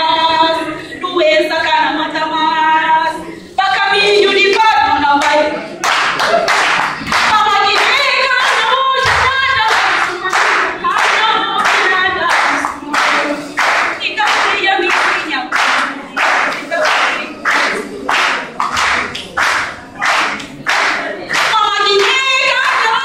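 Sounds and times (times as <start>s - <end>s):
woman singing into a microphone: 0.0s - 5.7s, 7.2s - 17.8s, 20.9s - 23.0s
group clapping along: 3.8s - 23.0s.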